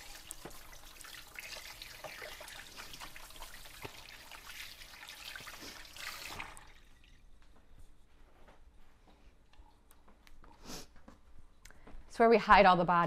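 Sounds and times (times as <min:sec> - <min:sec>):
kitchen tap running: 0:00.0 - 0:07.2.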